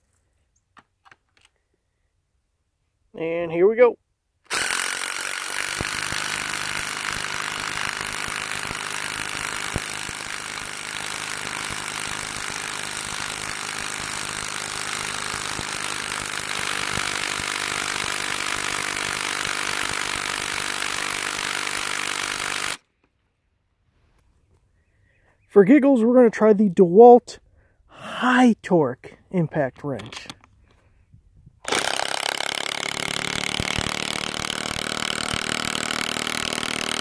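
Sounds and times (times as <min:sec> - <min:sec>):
impact wrench hammering: 0:04.5 - 0:22.8, 0:31.7 - 0:37.0.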